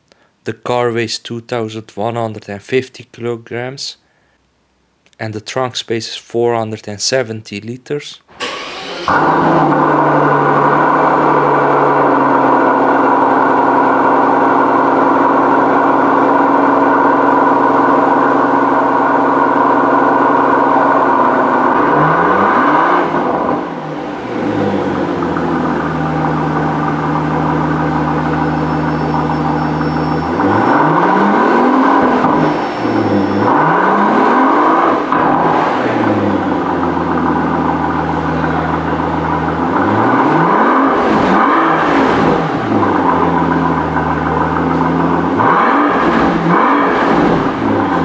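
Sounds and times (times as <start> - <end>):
car engine idling and revving: 8.4 - 48.0.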